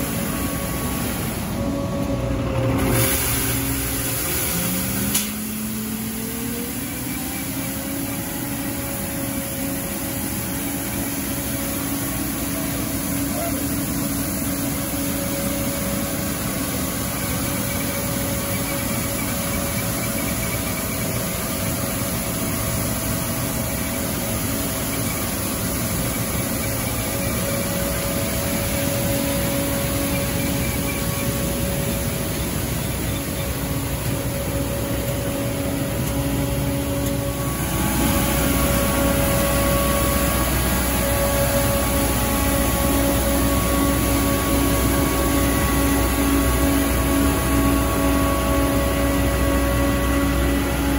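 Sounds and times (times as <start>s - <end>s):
street sweeper engine droning: 0.0s - 50.9s
whining tones: 25.0s - 50.9s.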